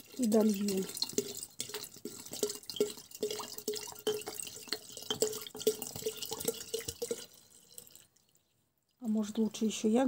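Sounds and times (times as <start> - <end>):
liquid glugging from bottle: 0.0 - 8.0.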